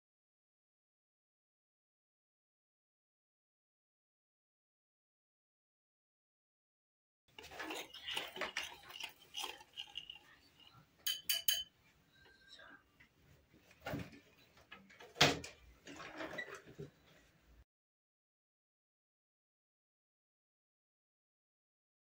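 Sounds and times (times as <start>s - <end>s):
whisk scraping a bowl: 7.3s - 11.7s
ringing clinks: 11.1s - 11.7s.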